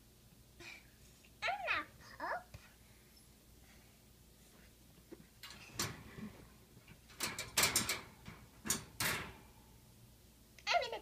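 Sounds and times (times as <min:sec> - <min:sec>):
wire dog crate rattling: 0:05.4 - 0:09.6.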